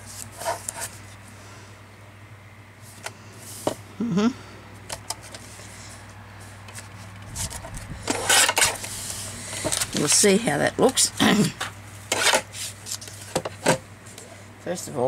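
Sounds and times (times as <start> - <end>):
steady low hum: 0.0 - 15.0
murmured voice: 4.0 - 4.5.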